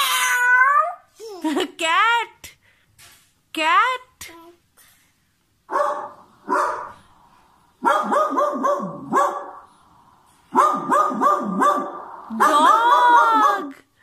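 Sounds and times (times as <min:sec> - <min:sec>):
recorded dog barks from speaker: 0:05.7 - 0:07.0, 0:07.8 - 0:09.7, 0:10.5 - 0:13.8.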